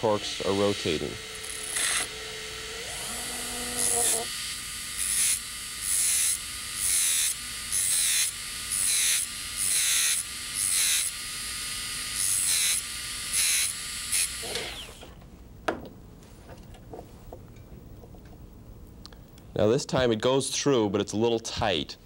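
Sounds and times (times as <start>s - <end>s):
disc grinding metal shaft: 0.0s - 4.3s
dental handpiece motors running: 0.0s - 15.2s.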